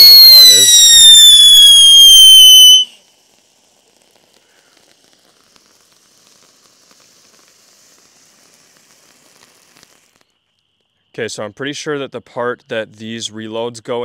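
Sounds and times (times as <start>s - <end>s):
firework spark fountain hissing: 0.0s - 10.5s.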